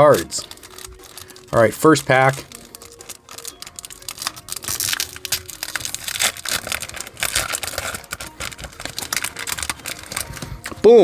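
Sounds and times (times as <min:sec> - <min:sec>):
foil wrapper crinkling and tearing: 0:00.0 - 0:11.0.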